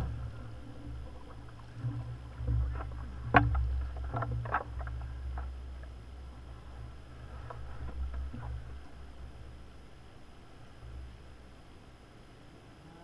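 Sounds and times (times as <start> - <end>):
oar blades splashing: 0.0 - 9.4
oars knocking: 0.0 - 9.4
low steady rumble: 0.0 - 13.0.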